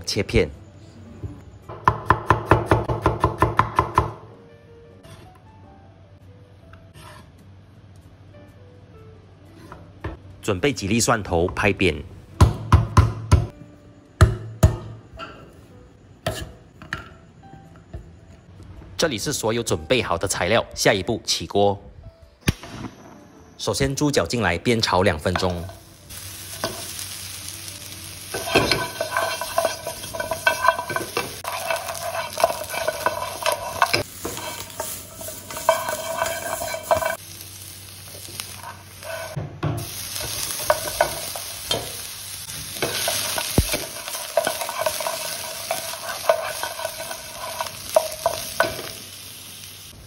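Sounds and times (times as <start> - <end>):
meat sizzling in a wok: 25.4 - 50.0
stirring scraping against pan: 28.3 - 37.2, 38.5 - 39.4, 42.8 - 48.9.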